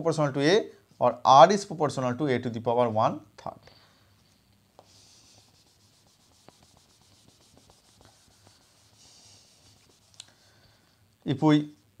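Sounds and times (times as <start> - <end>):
cloth wiping whiteboard: 4.8 - 10.2.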